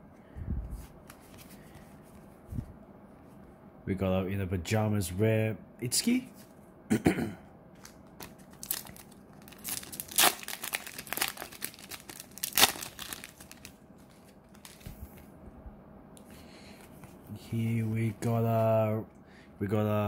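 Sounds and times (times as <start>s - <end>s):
wrapper tearing: 7.8s - 15.0s
wrapper crinkling: 7.8s - 15.2s.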